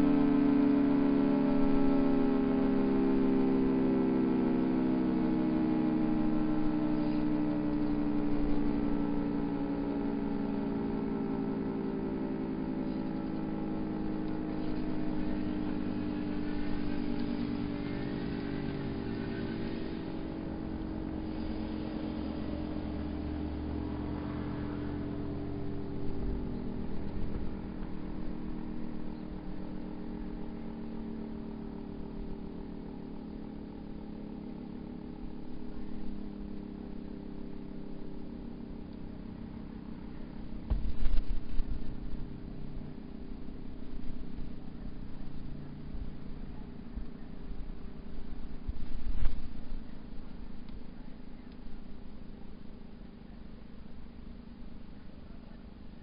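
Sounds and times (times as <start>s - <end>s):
two-tone warning siren winding down: 0.0s - 40.6s.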